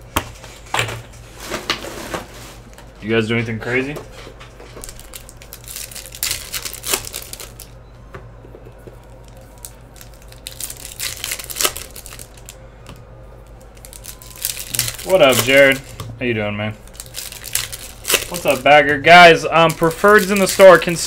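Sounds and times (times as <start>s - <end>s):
low steady hum: 0.0s - 21.0s
foil wrappers crinkling and tearing: 4.8s - 7.8s, 9.0s - 12.6s, 13.4s - 16.1s, 16.8s - 21.0s.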